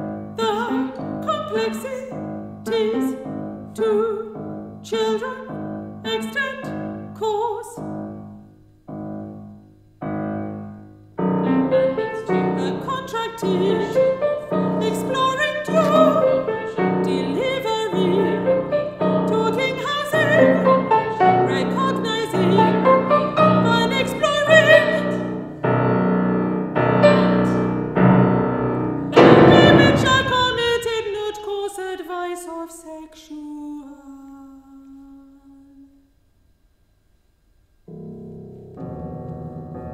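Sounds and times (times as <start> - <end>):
woman singing: 0.4 - 7.9, 12.0 - 25.4, 26.8 - 27.7, 29.1 - 36.0
piano playing: 7.8 - 31.2, 37.9 - 39.9.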